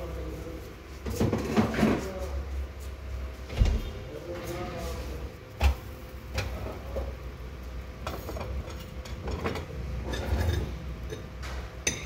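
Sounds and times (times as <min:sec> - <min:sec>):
utensils clinking on pan: 0:08.0 - 0:12.0.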